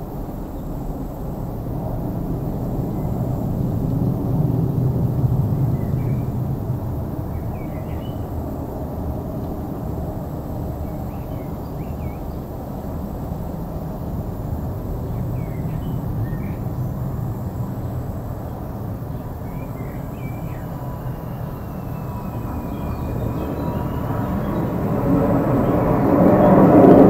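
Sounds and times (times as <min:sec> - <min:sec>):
distant airliner rumble: 0:00.0 - 0:27.0
small birds chirping: 0:07.3 - 0:08.4, 0:10.7 - 0:12.7, 0:14.8 - 0:17.0, 0:17.7 - 0:26.7.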